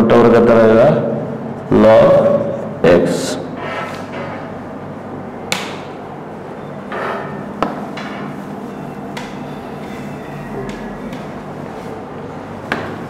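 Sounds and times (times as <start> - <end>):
taps against whiteboard: 7.6 - 8.2, 12.7 - 13.0.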